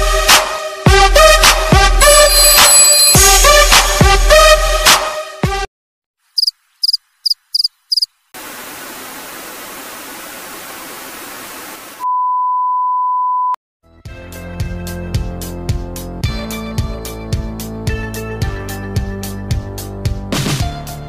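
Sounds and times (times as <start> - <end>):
music: 0.0 - 5.7, 13.8 - 21.0
short high chirps: 2.0 - 3.3
steady test-pattern bleep: 2.1 - 3.2
static hiss: 8.4 - 12.0.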